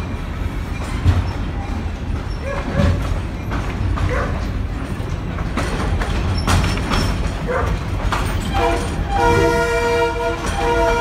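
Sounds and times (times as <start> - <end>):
train car rumble with knocks: 0.0 - 11.0
train horn chord: 8.5 - 11.0.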